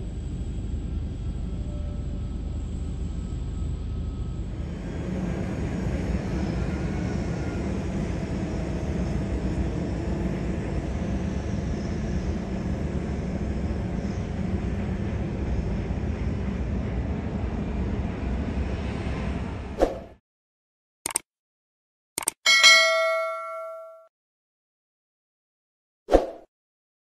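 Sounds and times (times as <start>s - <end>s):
faint engine whine: 0.0s - 19.8s
jet engines rumbling: 0.0s - 19.8s.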